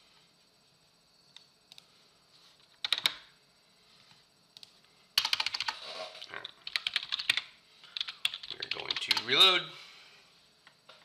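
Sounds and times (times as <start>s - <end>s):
keyboard keystrokes: 2.8s - 3.3s, 6.4s - 9.3s.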